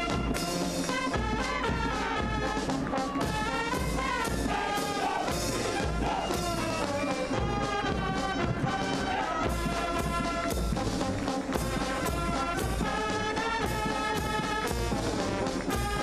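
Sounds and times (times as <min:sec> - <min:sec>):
brass marching band: 0:00.0 - 0:16.0
low drum beat: 0:00.0 - 0:16.0.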